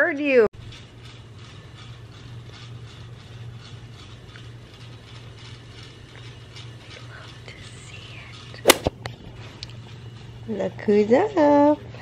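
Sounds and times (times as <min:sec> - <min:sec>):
sharp loud click: 0:08.6 - 0:09.0.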